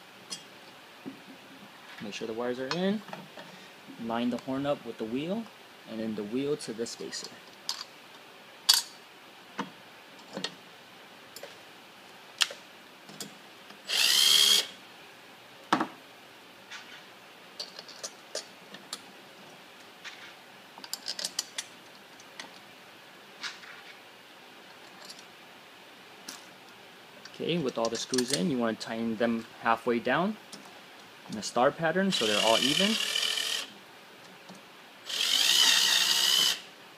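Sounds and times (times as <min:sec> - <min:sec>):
cordless drill-driver whine: 0:13.9 - 0:14.7, 0:32.2 - 0:33.7, 0:35.1 - 0:36.7
metal parts clicking and tapping: 0:27.2 - 0:28.5.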